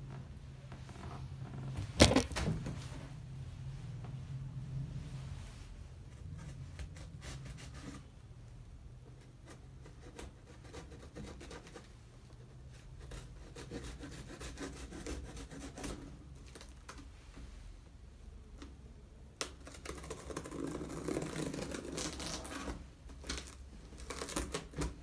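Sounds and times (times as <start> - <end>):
scrapes and clicks on cardboard: 9.1 - 17.1
knife cutting packing tape: 23.3 - 25.0.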